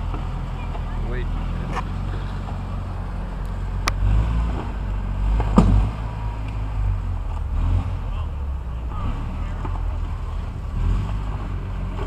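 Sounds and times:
vehicle engine droning: 0.0s - 12.0s
sharp knocks: 5.4s - 6.0s.

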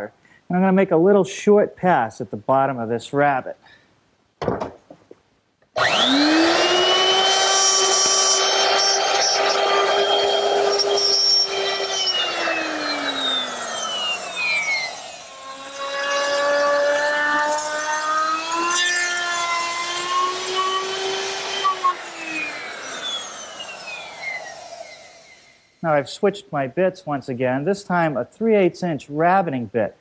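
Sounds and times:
electric router whining: 5.8s - 25.8s
router cutting hiss: 5.8s - 25.8s.

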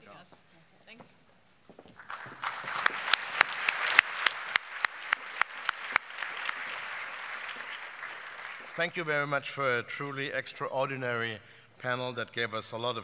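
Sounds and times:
sharp close claps: 2.0s - 9.1s
audience applauding: 2.0s - 9.3s.

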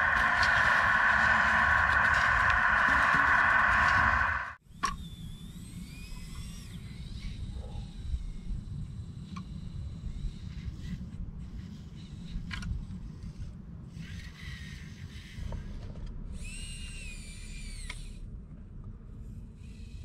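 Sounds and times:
low steady rumble: 0.0s - 4.6s
small electric motor whining: 0.0s - 12.2s, 16.4s - 18.2s.

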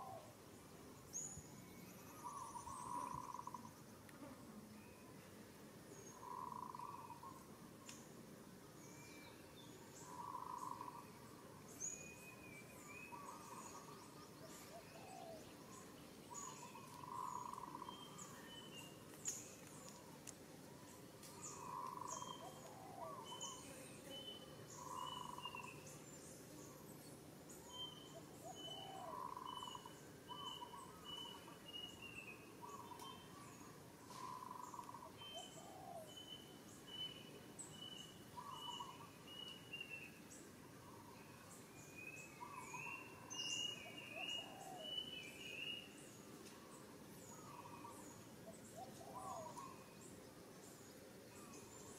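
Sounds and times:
bird hooting: 6.2s - 7.4s.

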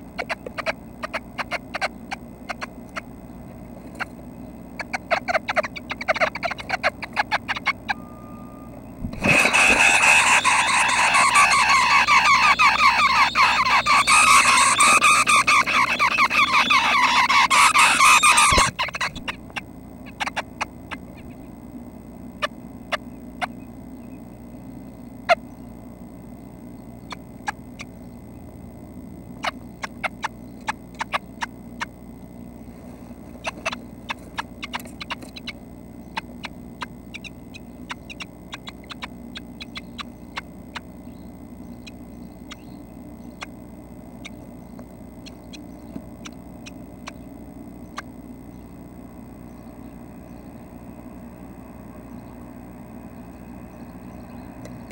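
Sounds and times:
bird nestlings begging chorus: 0.0s - 21.6s, 29.2s - 54.9s
faint ticks: 54.6s - 54.9s.

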